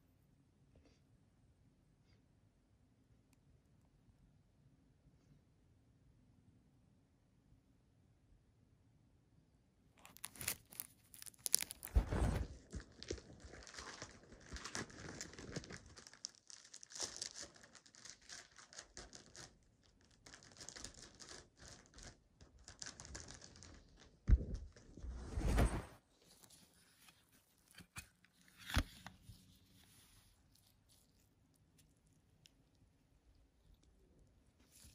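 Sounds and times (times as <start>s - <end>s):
cellophane crinkling and crackling: 10.0s - 25.0s.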